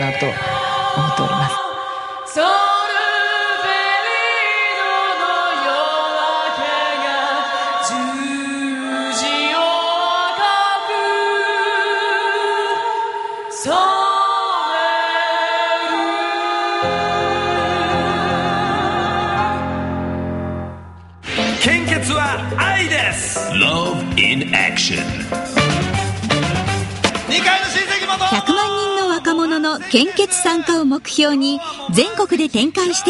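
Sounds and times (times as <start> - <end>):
women's choir singing: 0.0 - 20.2.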